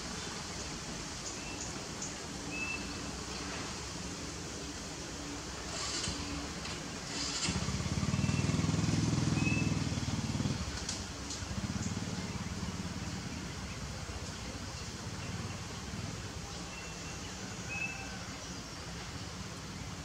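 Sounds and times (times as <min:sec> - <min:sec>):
outdoor background hiss: 0:00.0 - 0:20.0
vehicle engine running: 0:02.8 - 0:17.6.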